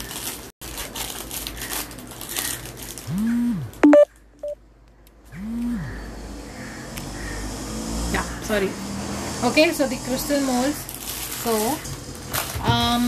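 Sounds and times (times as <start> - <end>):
short electronic beep: 3.8 - 4.6.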